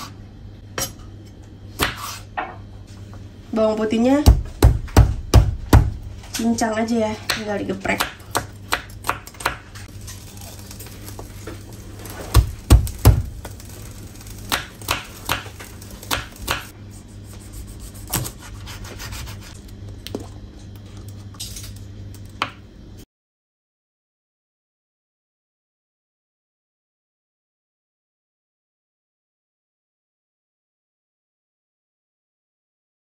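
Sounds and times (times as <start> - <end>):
knife chopping on wooden board: 1.8 - 2.5, 4.3 - 6.0, 7.2 - 9.7, 14.5 - 16.7, 17.4 - 19.6
knife smashing garlic on board: 17.9 - 19.6.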